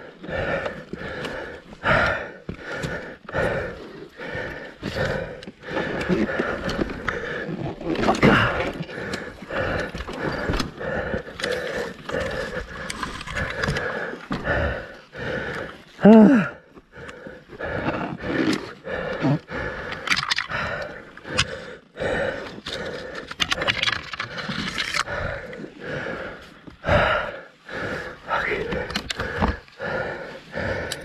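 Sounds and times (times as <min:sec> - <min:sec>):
man panting and grunting: 0:00.0 - 0:31.0
man groaning: 0:16.0 - 0:16.7.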